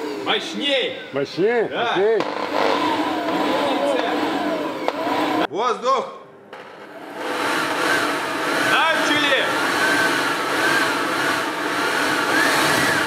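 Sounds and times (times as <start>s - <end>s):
leaf blower blowing: 2.2s - 5.5s, 7.0s - 13.0s.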